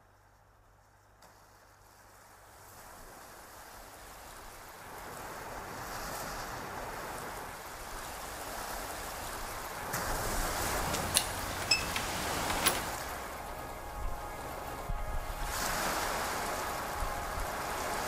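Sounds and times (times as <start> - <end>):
sea surf washing on shore: 1.8 - 18.0.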